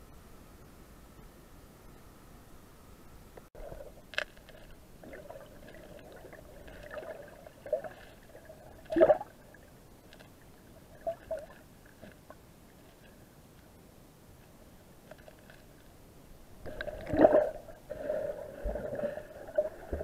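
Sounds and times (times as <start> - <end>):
underwater gurgling and bubbling: 5.0 - 9.6, 16.6 - 20.0.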